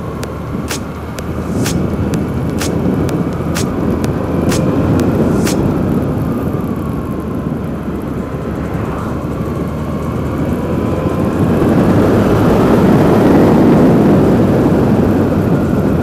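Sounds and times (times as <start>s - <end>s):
motorcycle engine: 0.0s - 12.6s
wind noise: 0.0s - 16.0s.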